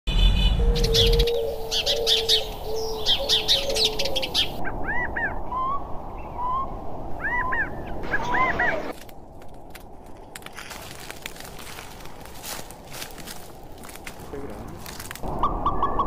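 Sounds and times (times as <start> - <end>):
birds chirping and whistling: 0.1 - 9.0, 15.3 - 16.0.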